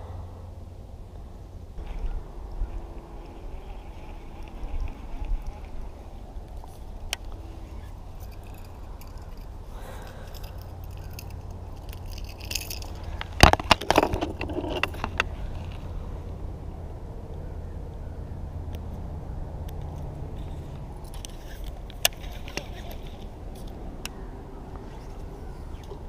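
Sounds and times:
steady low rumble: 0:00.0 - 0:26.0
gear clicking against kayak deck: 0:06.5 - 0:15.8.

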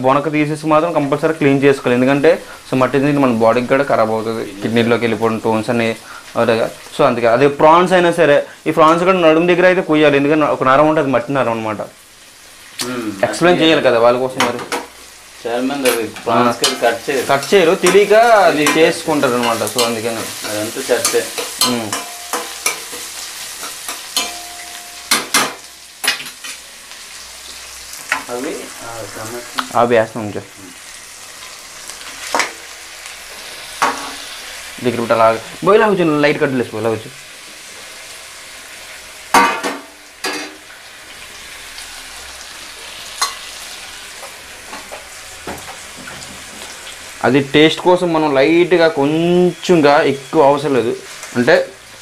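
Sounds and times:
steady sizzle: 0:00.0 - 0:52.0
metal spoon scraping a pan: 0:15.8 - 0:26.6, 0:43.2 - 0:43.6
spoon clanking against pan: 0:17.8 - 0:26.6, 0:43.2 - 0:43.4.

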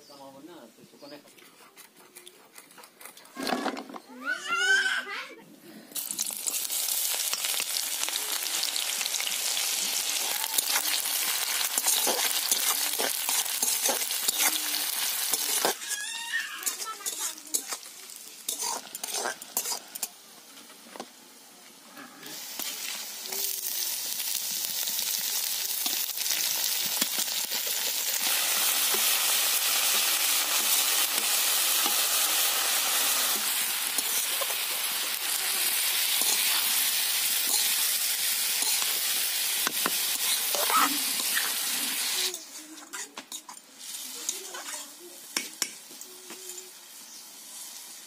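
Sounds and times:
loud steady sizzle: 0:05.8 - 0:48.0
fish frying in oil: 0:06.0 - 0:20.1, 0:22.3 - 0:42.4
metal spatula scraping and tapping: 0:11.8 - 0:14.6, 0:15.3 - 0:16.0, 0:16.6 - 0:17.9, 0:18.5 - 0:20.1, 0:42.8 - 0:43.6, 0:44.2 - 0:46.6.

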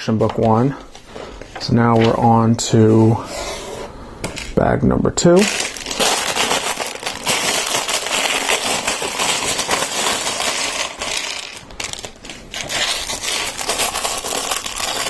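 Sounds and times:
plastic bag crinkling: 0:05.4 - 0:15.0.

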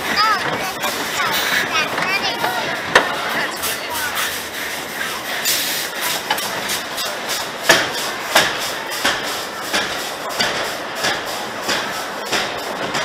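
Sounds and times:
roller coaster clacking on track: 0:00.0 - 0:13.0
steady rattling hiss: 0:00.0 - 0:13.0.

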